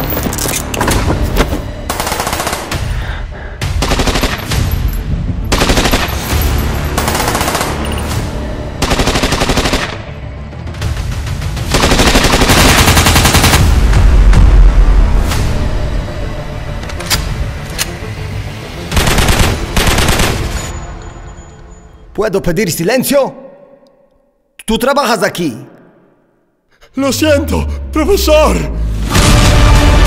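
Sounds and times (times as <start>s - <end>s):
automatic gunfire bursts: 3.8s - 4.5s, 7.0s - 7.8s, 11.7s - 13.6s, 18.9s - 20.4s.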